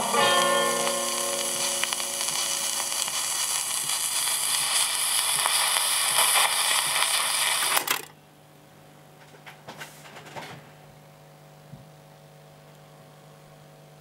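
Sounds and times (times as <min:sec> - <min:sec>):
record crackles and clicks: 0:00.0 - 0:08.2
record surface hiss: 0:00.0 - 0:14.0.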